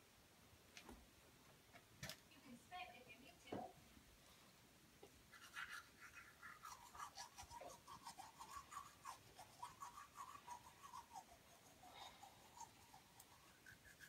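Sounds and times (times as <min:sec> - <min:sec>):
toothbrush scrubbing teeth: 0:05.3 - 0:14.0.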